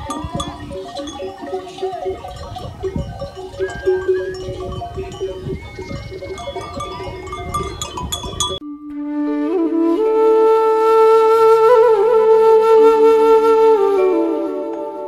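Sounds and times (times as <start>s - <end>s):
animal calls: 0.0s - 8.5s
animal neck bells clanking: 0.0s - 8.6s.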